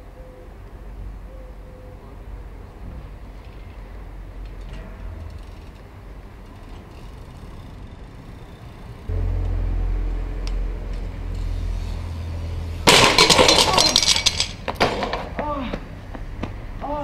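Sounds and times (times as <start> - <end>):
steady low rumble: 4.0 - 13.4
skateboard crashing on cobblestones: 12.8 - 15.4.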